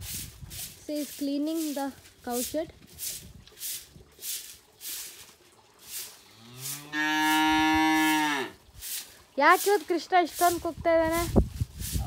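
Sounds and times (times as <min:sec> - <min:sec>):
broom sweeping straw floor: 0:00.0 - 0:12.0
cow mooing: 0:06.4 - 0:08.6.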